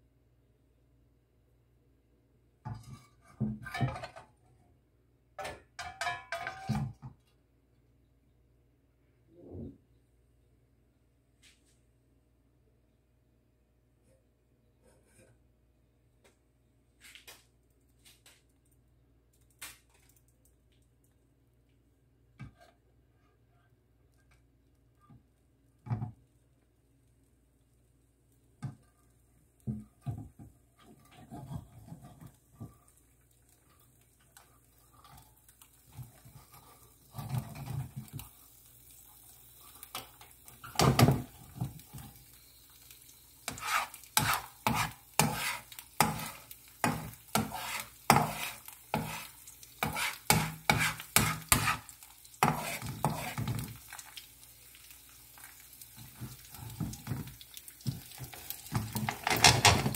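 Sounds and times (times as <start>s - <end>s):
spatula scraping a frying pan: 2.7s - 4.4s, 14.8s - 15.4s, 30.8s - 32.7s, 34.6s - 38.3s, 43.4s - 54.2s
egg sizzling in a pan: 24.7s - 59.9s.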